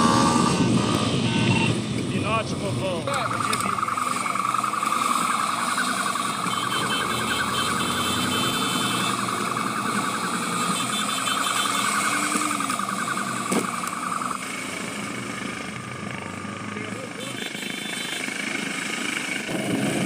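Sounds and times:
police siren warbling: 2.6s - 15.9s
high beeps: 3.0s - 14.5s.

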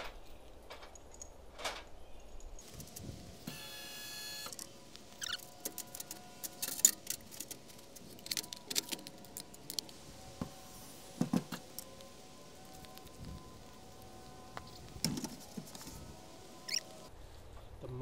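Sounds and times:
brief motor buzz: 3.4s - 4.6s.

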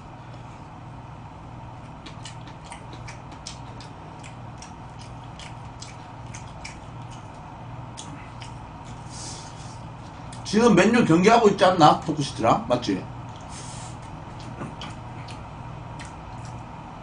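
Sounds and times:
steady low hum: 0.0s - 17.0s
person chewing with wet smacks: 1.7s - 10.5s, 13.2s - 16.8s.

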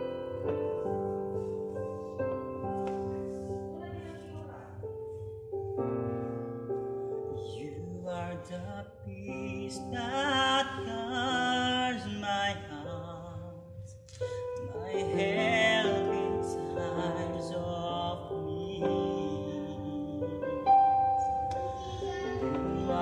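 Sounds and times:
keyboard piano chords: 0.0s - 23.0s
man singing slow worship song: 7.4s - 23.0s.

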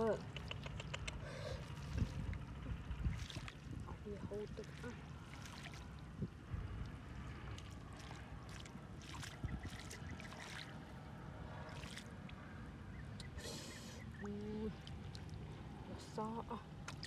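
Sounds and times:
steady low rumble: 0.0s - 17.0s
hands splashing in wet mud: 7.9s - 10.8s.

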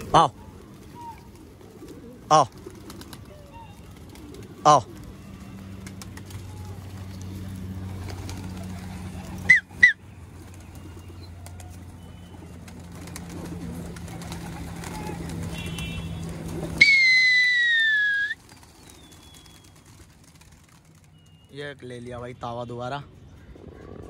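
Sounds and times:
pigeons cooing: 0.0s - 21.3s, 23.2s - 24.0s
pigeon wings flapping: 0.0s - 21.5s
loud held whistle: 9.5s - 10.0s, 16.8s - 18.4s.

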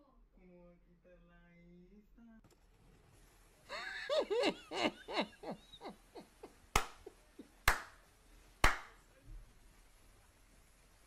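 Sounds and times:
man laughing: 3.7s - 7.6s
hand claps: 6.7s - 8.0s, 8.6s - 9.0s.

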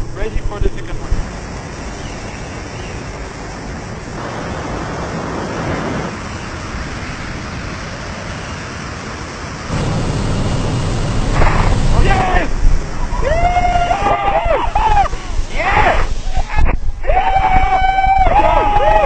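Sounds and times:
plane engine: 0.0s - 16.3s
air rushing through aircraft door: 9.7s - 19.0s.

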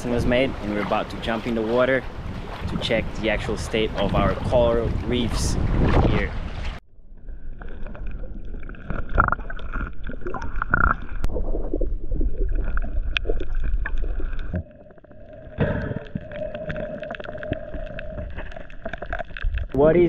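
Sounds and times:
muffled underwater water rumble: 0.0s - 19.8s.

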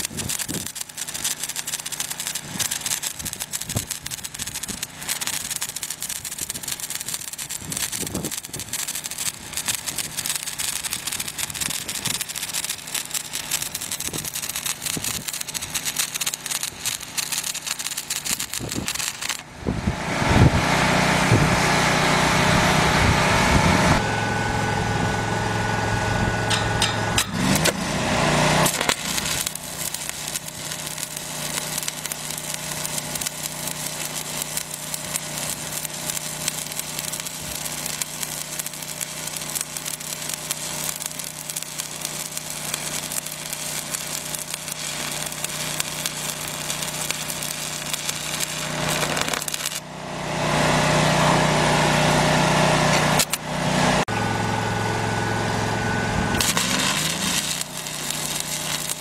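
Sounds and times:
welding arc crackling: 0.0s - 19.6s, 26.5s - 54.1s, 56.4s - 59.0s
steady low hum: 22.4s - 28.0s.

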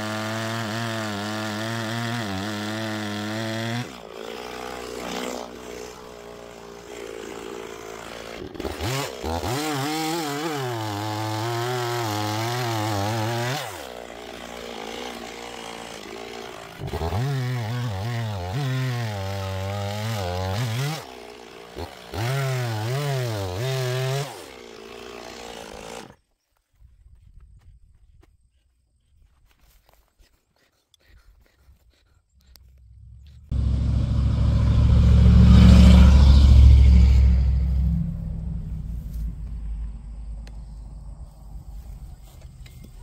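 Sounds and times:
chainsaw cutting log: 0.0s - 26.2s.

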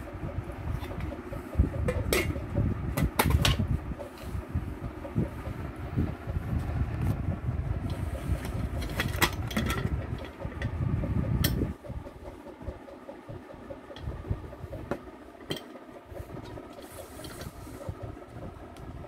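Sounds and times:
microphone handling rumble: 0.2s - 14.9s
metal lid clicks and knocks: 1.9s - 2.4s.

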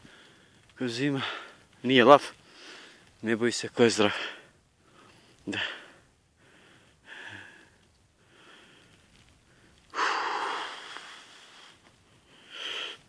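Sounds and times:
man breathing hard: 4.2s - 13.0s.

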